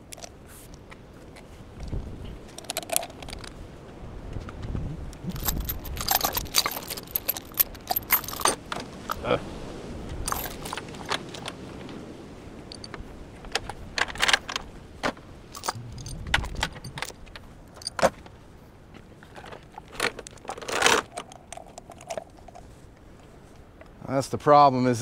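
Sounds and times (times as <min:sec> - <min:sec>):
chains clinking and rattling: 0:05.2 - 0:09.2, 0:10.2 - 0:11.6, 0:12.7 - 0:13.0, 0:15.5 - 0:18.1, 0:19.8 - 0:22.8.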